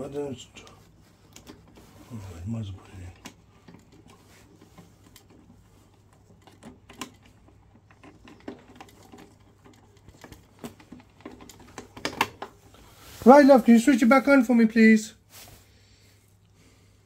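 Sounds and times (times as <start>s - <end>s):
plastic parts clicking and tapping: 1.2s - 1.8s, 3.0s - 12.7s.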